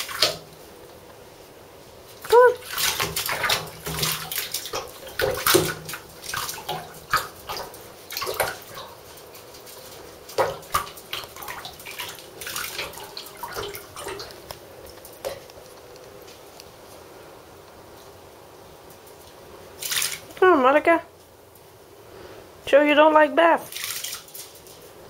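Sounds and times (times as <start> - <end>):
water splashing in bathtub: 0.0 - 0.6, 2.1 - 15.6, 19.3 - 20.5, 23.6 - 25.0.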